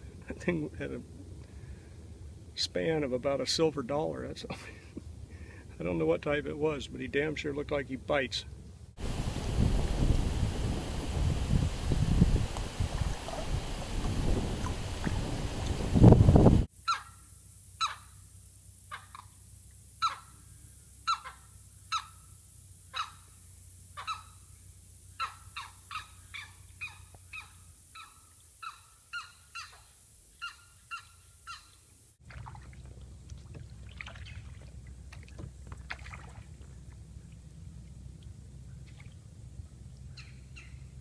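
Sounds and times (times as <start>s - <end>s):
steady low rumble: 0.0s - 16.7s, 36.3s - 41.0s.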